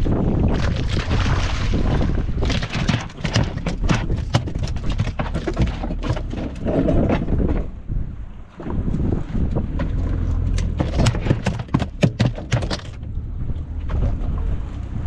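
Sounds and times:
fish slapping on boat deck: 0:00.5 - 0:07.6, 0:10.5 - 0:13.0.

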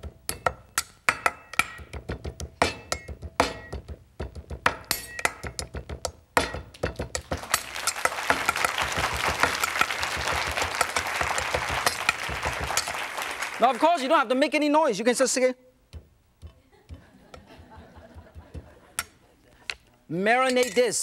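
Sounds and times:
audience applause: 0:07.2 - 0:14.1.

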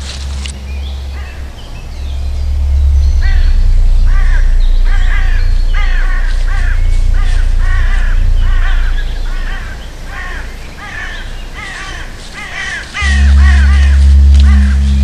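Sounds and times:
low rumble: 0:00.0 - 0:15.0
crows cawing: 0:04.1 - 0:14.8.

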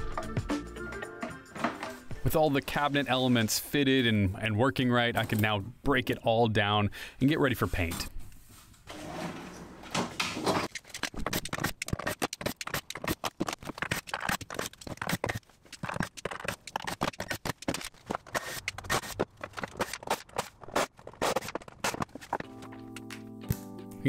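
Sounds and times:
drawer sliding on metal slides: 0:08.9 - 0:10.7.

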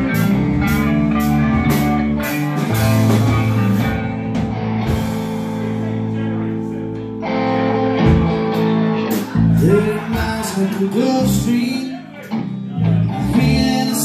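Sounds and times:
electric guitars: 0:00.0 - 0:14.0
drum hits: 0:08.0 - 0:08.5.

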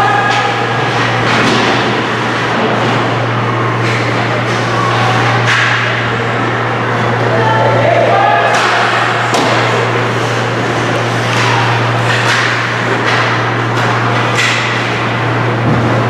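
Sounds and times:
steady low hum: 0:00.0 - 0:16.0
hockey sticks and puck knocking: 0:08.5 - 0:09.8, 0:11.0 - 0:14.9.

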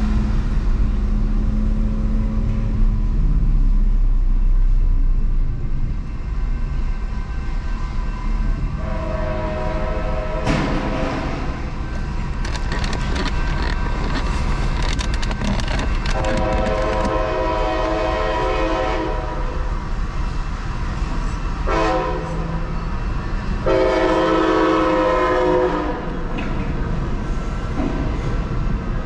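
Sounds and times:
train rolling past: 0:00.0 - 0:29.0
train horn blasts: 0:08.7 - 0:11.6, 0:16.1 - 0:19.7, 0:21.6 - 0:22.7, 0:23.6 - 0:26.2.

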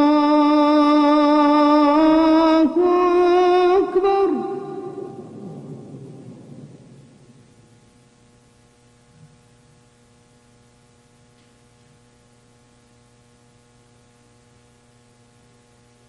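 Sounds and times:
faint mains hum: 0:00.0 - 0:16.0.

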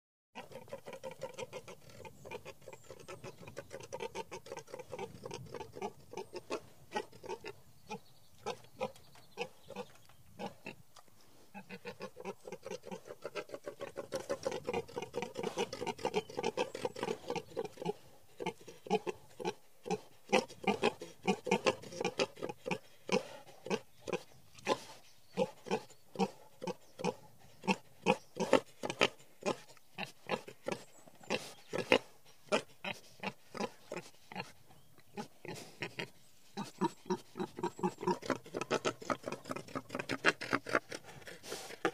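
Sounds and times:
wild boar grunting: 0:11.5 - 0:41.9.

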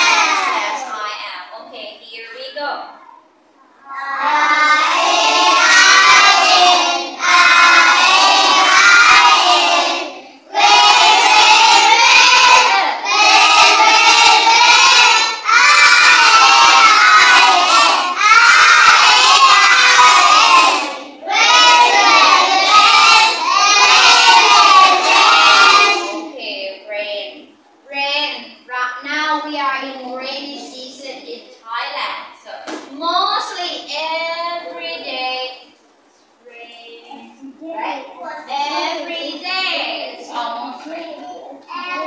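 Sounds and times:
children singing in unison: 0:03.9 - 0:26.3.

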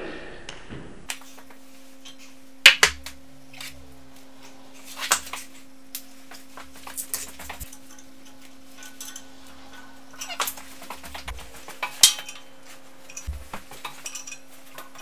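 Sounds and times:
faint steady hum: 0:00.0 - 0:15.0
metal fittings clinking on steel: 0:07.1 - 0:15.0.

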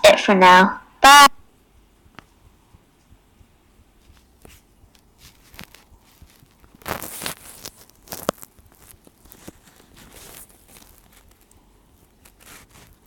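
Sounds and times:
scraping rustle: 0:04.0 - 0:13.0.

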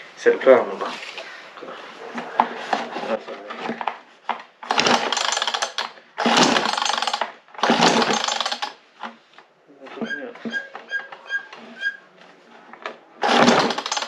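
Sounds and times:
chainsaw recoil starter cranking: 0:04.6 - 0:08.8, 0:13.2 - 0:14.0.

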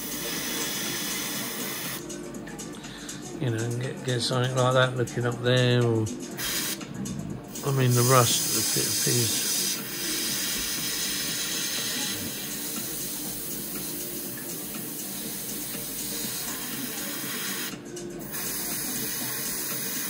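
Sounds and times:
airbrush spraying hiss: 0:00.0 - 0:02.0, 0:06.4 - 0:06.8, 0:07.5 - 0:14.0, 0:15.1 - 0:20.0.

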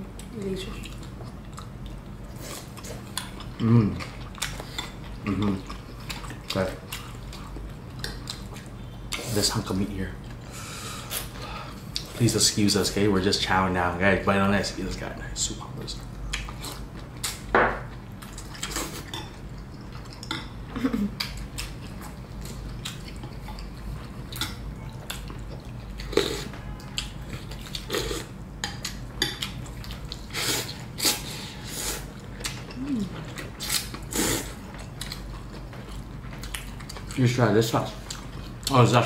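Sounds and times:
chewing: 0:00.2 - 0:09.4, 0:16.3 - 0:20.6, 0:21.2 - 0:31.2, 0:31.9 - 0:37.3, 0:37.9 - 0:38.8
person humming appreciatively: 0:03.6 - 0:04.0, 0:32.7 - 0:33.3.

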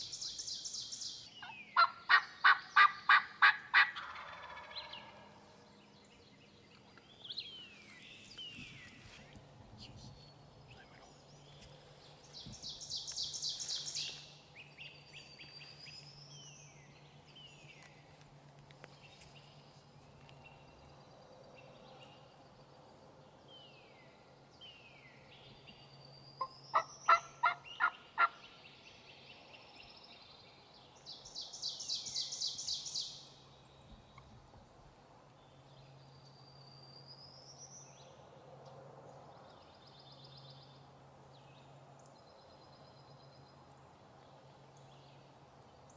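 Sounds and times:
turkey yelping: 0:01.8 - 0:05.1, 0:26.7 - 0:28.4.

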